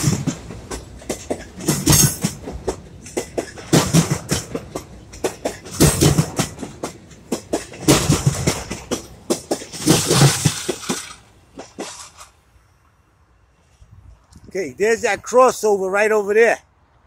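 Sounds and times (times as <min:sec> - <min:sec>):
train wheels clacking over rails: 0:00.0 - 0:12.5.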